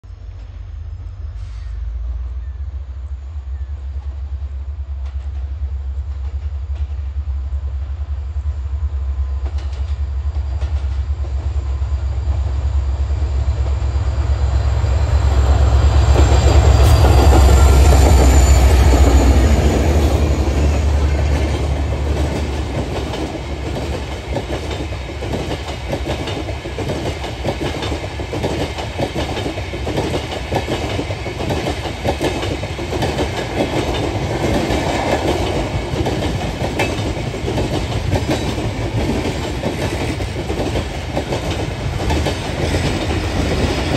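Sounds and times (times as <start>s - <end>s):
diesel locomotive engine rumble: 0.0s - 43.9s
train wheels clicking over rails: 9.4s - 11.7s, 13.4s - 43.9s.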